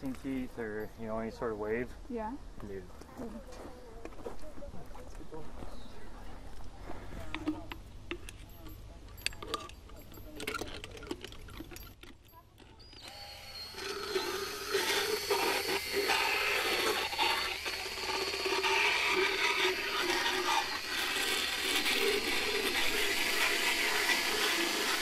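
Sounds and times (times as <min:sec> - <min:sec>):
power dental float running: 0:12.7 - 0:25.0.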